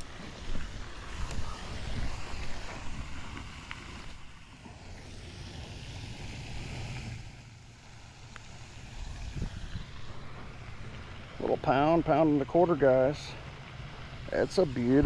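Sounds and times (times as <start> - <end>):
wind buffeting microphone: 0.0 - 5.1, 8.9 - 11.5
steady hiss: 0.0 - 15.0.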